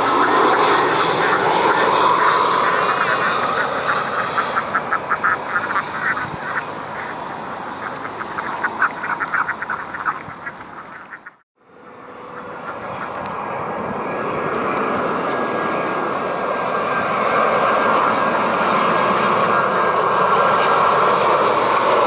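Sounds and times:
rapid animal calls: 0:00.0 - 0:11.4
jet engines of airliner: 0:00.0 - 0:22.0.

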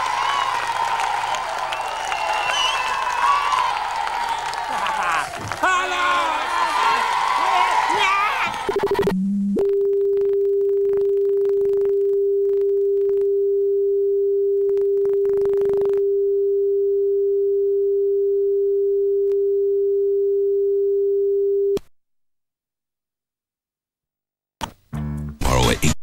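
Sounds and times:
steady pure test tone: 0:08.8 - 0:20.5.

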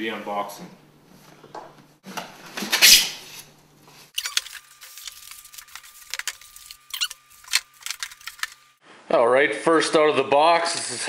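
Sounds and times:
packing material crinkling: 0:04.2 - 0:08.7.

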